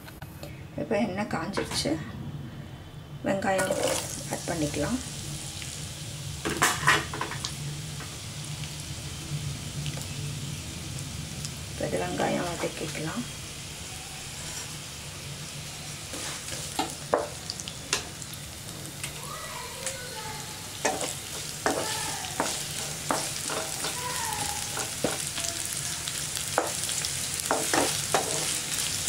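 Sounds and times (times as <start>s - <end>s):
onions sizzling in oil: 3.3s - 29.0s
spatula knocking and scraping pan: 16.1s - 18.0s, 20.8s - 25.4s, 26.5s - 28.6s.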